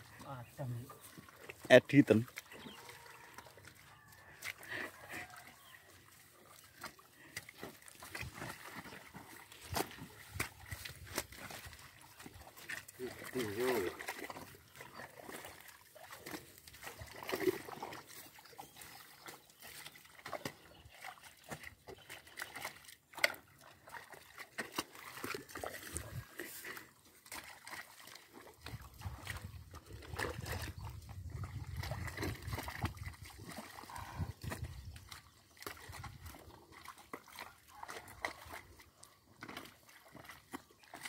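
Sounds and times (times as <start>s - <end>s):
water sloshing in mud: 0.0s - 41.0s
hoes chopping into wet soil: 9.6s - 14.5s.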